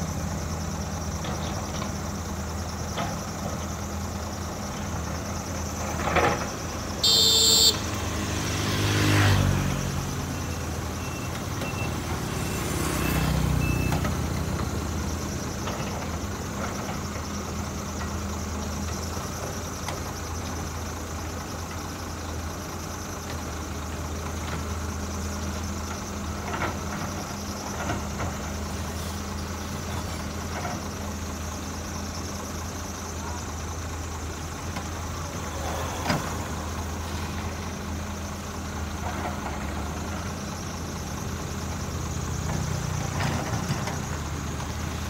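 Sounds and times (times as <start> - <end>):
heavy diesel engines idling: 0.0 - 45.0
faint high beeps: 7.0 - 7.8, 10.3 - 14.1.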